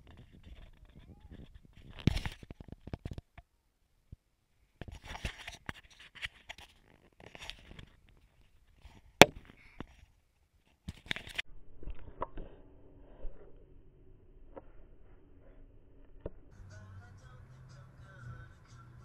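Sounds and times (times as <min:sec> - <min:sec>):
low steady hum: 0:11.5 - 0:18.0.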